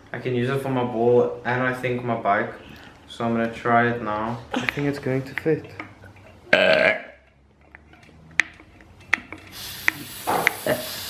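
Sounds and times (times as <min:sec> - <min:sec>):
air hissing from valve: 0:09.5 - 0:11.0.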